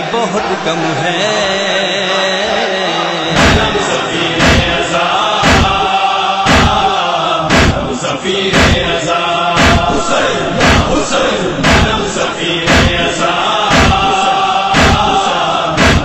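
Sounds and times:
men chanting in unison: 0.0s - 16.0s
chest-beating slaps: 3.4s - 9.0s, 9.6s - 16.0s.

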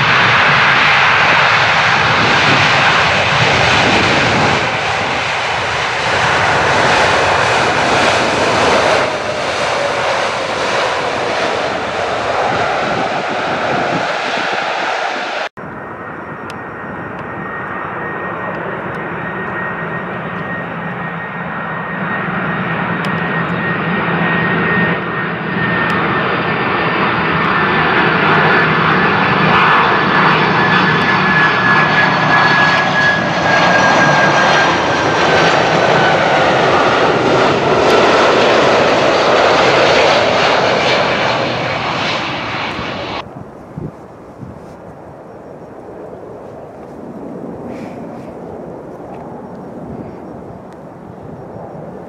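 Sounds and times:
jet airliner passing low: 0.0s - 52.0s.

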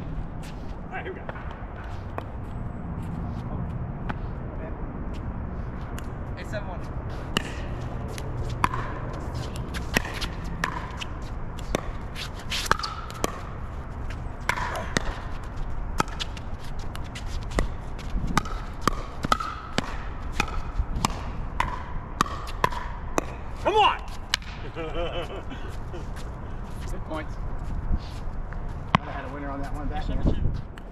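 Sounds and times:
shoes scuffing on court: 0.1s - 4.3s, 6.8s - 19.0s
wind rumble on microphone: 13.4s - 19.3s, 20.0s - 21.7s, 24.6s - 30.9s.

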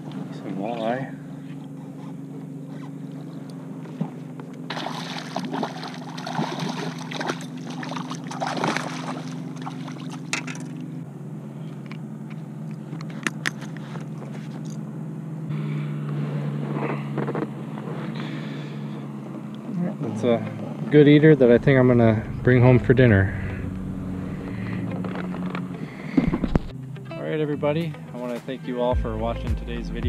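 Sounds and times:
low hum: 0.0s - 30.0s
water splashing and sloshing: 3.1s - 11.0s.

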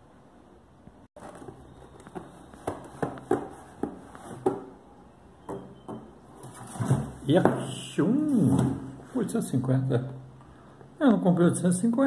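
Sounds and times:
cardboard boxes knocking and scraping: 1.2s - 4.8s, 5.5s - 7.7s.

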